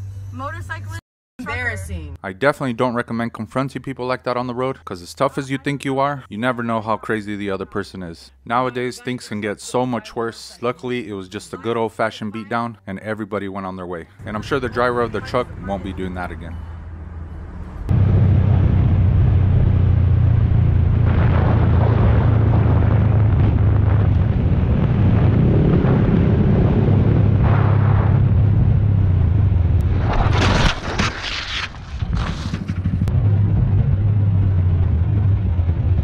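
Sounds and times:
wind rushing over microphone: 17.7 - 30.6
motorcycle engine running: 32.1 - 36.0.

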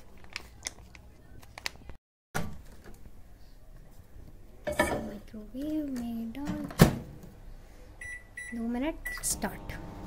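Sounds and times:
kitchen handling noises: 4.6 - 7.3.

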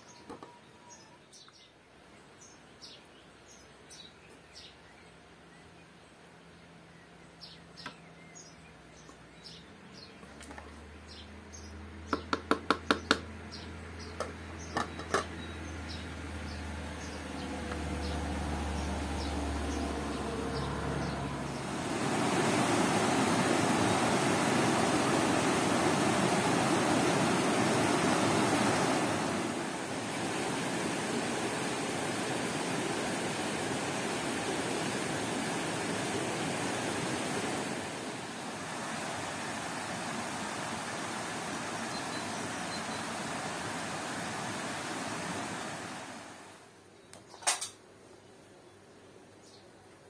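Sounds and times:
water rushing over rocks: 21.2 - 46.6.

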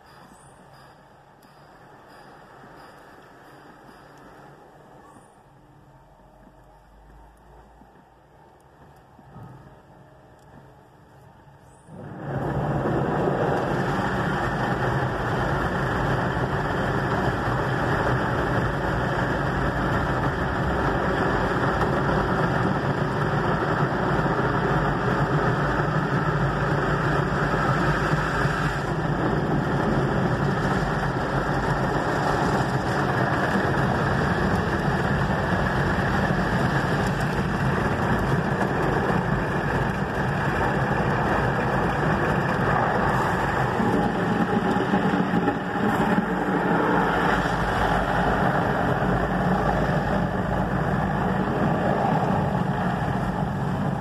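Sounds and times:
car wash machinery rushing: 11.9 - 54.0.

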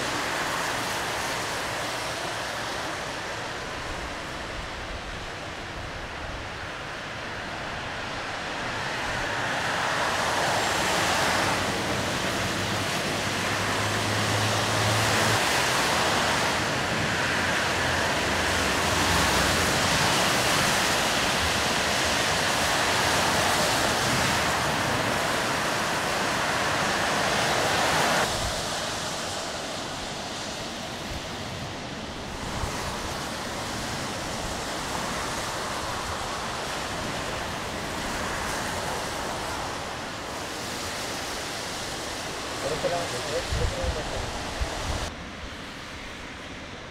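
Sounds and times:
tyres hissing on wet road: 0.0 - 46.9
vehicle engines: 0.0 - 46.9.

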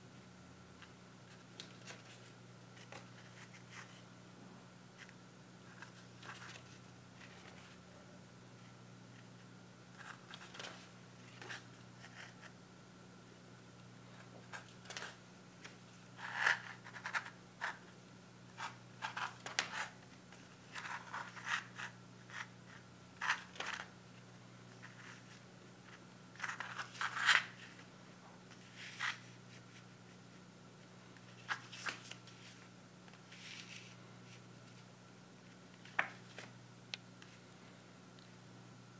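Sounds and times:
paper pages rustling: 1.3 - 4.0, 5.7 - 7.8, 10.0 - 12.5, 14.2 - 17.8, 24.7 - 27.9, 28.5 - 30.4, 31.2 - 34.8.

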